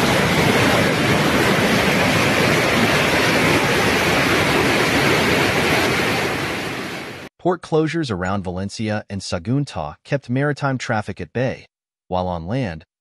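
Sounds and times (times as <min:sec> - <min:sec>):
rushing flood water: 0:00.0 - 0:07.3.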